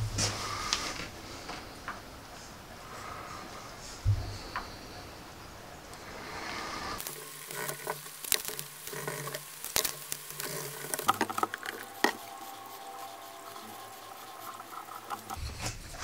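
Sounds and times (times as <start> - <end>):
tape crackling and tearing: 7.0 - 15.8.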